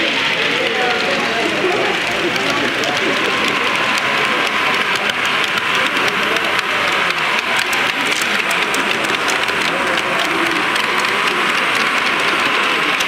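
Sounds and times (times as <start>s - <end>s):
hubbub of many voices: 0.0s - 13.0s.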